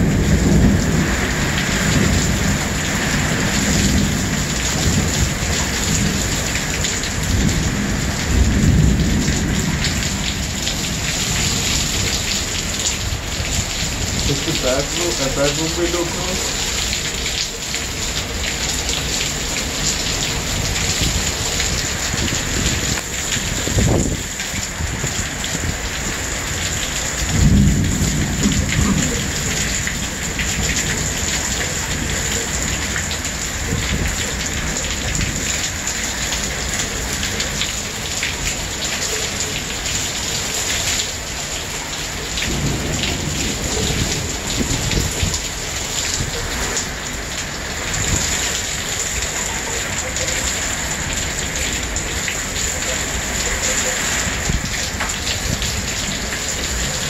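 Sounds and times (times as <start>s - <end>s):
heavy rain falling: 0.0s - 57.0s
thunder: 27.3s - 32.2s, 42.5s - 45.4s.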